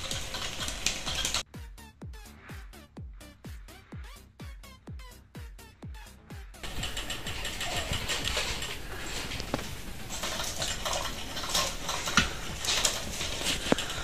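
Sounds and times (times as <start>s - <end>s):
plastic cat toy clicking and rattling: 0.0s - 1.4s, 6.6s - 14.0s.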